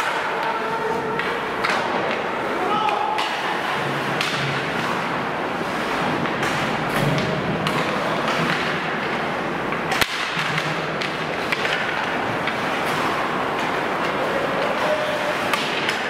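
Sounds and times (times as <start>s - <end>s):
hockey sticks clicking: 0.0s - 16.0s
skates scraping ice: 0.0s - 16.0s
sharp crack: 9.8s - 13.7s.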